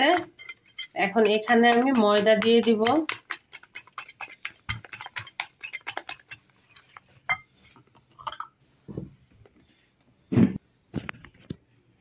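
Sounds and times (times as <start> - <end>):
whisk clinking against bowl: 0.0 - 7.4
whisk taps: 1.2 - 6.5.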